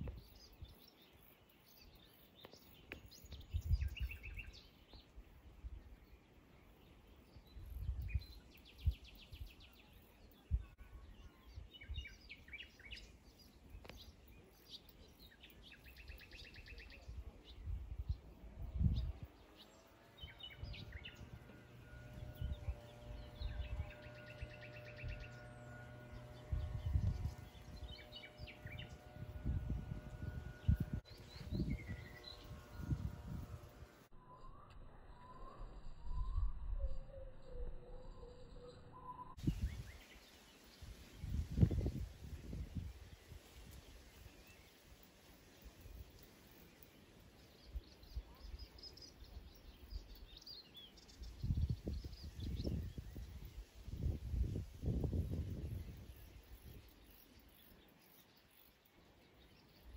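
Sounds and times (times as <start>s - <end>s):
birds chirping and singing: 0.0s - 59.9s
steady low hum: 17.6s - 39.9s
low rumbles on microphone: 20.2s - 34.1s, 41.1s - 43.2s, 51.2s - 56.8s
bird trills: 34.2s - 39.4s.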